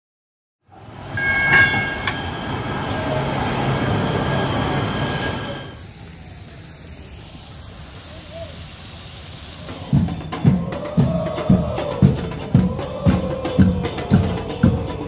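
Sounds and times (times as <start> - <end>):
train wheels rumbling on track: 0.7 - 5.8
high-pitched ringing squeal: 1.0 - 6.0.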